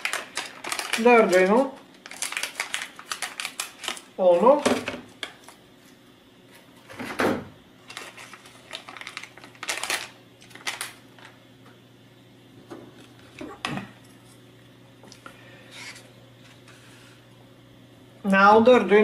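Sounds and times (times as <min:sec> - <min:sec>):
plastic bag crinkling: 0:00.0 - 0:05.6, 0:07.8 - 0:11.4.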